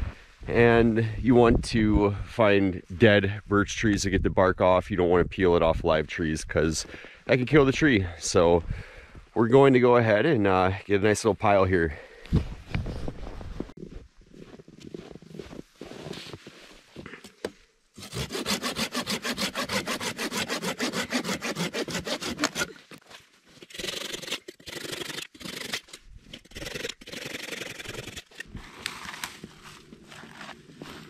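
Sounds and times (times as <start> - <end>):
hand saw cutting branch: 18.0 - 23.0, 23.6 - 29.4.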